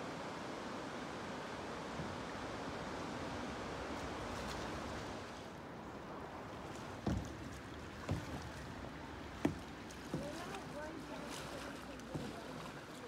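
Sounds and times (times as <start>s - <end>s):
water rushing: 0.0s - 13.0s
low knocks: 7.0s - 7.4s.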